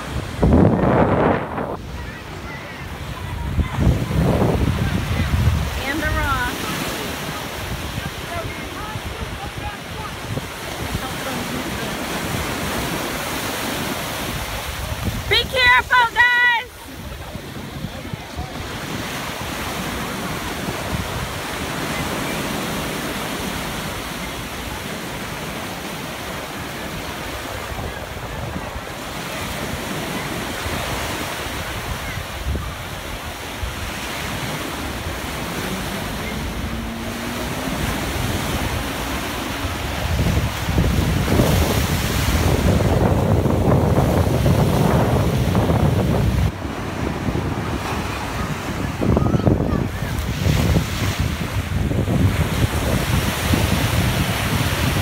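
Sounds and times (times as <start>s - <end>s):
small waves breaking on shore: 0.0s - 55.0s
wind buffeting microphone: 0.0s - 55.0s
faint outboard motor engine: 34.6s - 40.2s.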